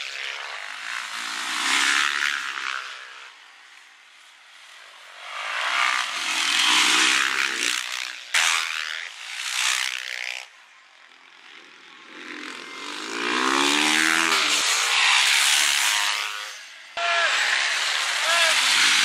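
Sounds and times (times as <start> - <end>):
motorcycle engines revving: 0.0 - 19.0.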